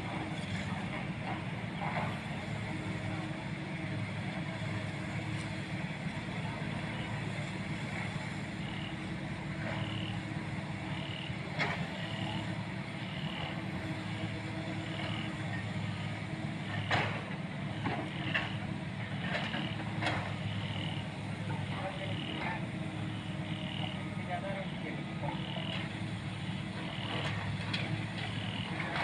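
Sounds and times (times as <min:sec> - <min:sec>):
heavy machinery engine hum: 0:00.0 - 0:29.0
reversing alarm beeping: 0:08.5 - 0:10.2, 0:10.8 - 0:16.0, 0:18.0 - 0:29.0
sharp knocks and clanks: 0:16.7 - 0:18.6.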